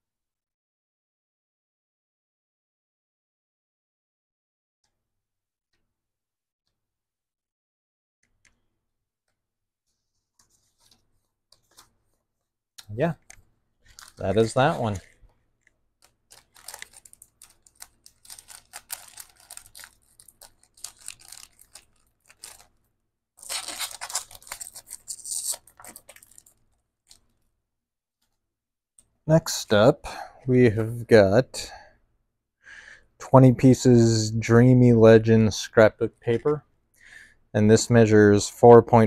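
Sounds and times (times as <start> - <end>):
paper rustling and crinkling: 9.9 - 12.3, 13.2 - 15.3, 16.0 - 22.8, 23.4 - 27.4.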